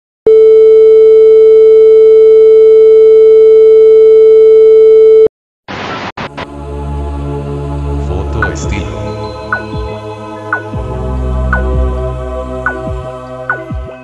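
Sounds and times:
tv static hiss: 5.7 - 6.5.

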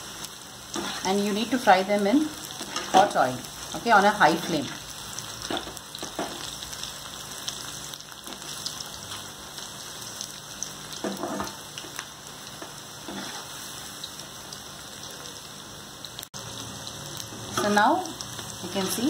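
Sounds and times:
food deep-frying in hot oil: 0.0 - 19.0.

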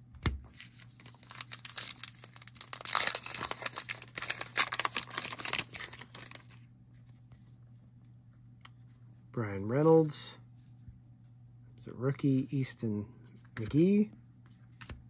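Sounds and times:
wrapper crackling: 0.9 - 6.6.

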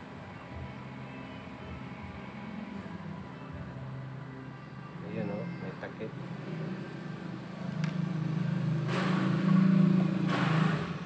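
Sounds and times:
vehicle engine passing by: 6.3 - 11.0.

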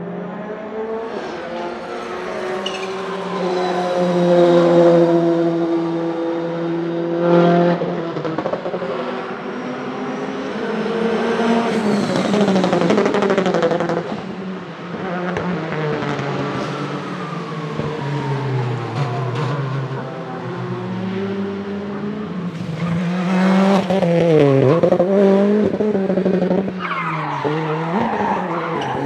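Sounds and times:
rally car engine revving: 18.6 - 29.0.

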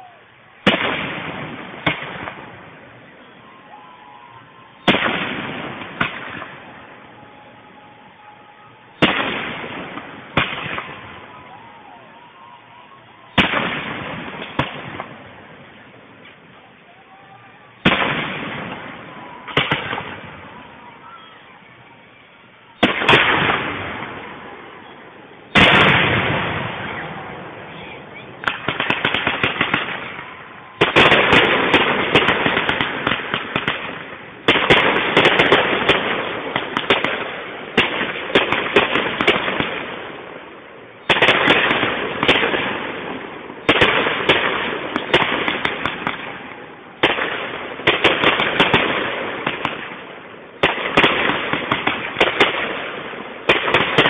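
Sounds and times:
firework crackle: 0.0 - 54.0
firework shells bursting: 28.4 - 39.8.

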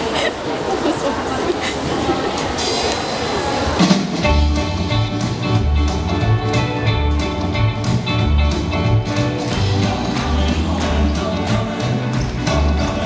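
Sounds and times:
rock and roll music with guitar: 4.0 - 13.0.

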